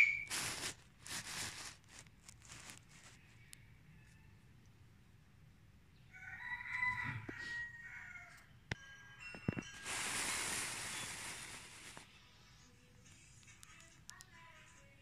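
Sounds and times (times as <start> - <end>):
rooster crowing: 6.1 - 8.6
loud hiss: 9.8 - 12.1.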